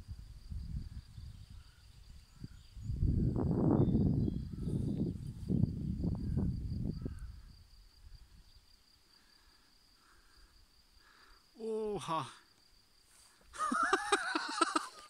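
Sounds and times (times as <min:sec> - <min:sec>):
wind buffeting microphone: 0:00.0 - 0:08.6
insects chirring: 0:00.0 - 0:15.0.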